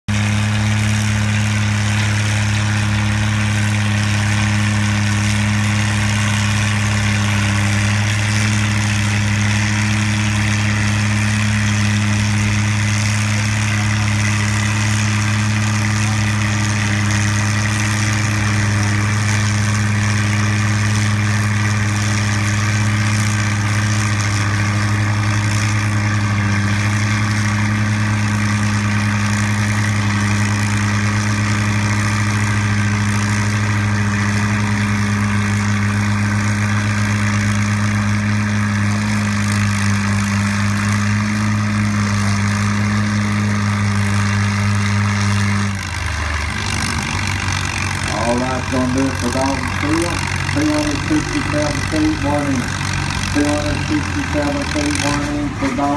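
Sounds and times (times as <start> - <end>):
tractor engine idling: 0.1 - 55.9.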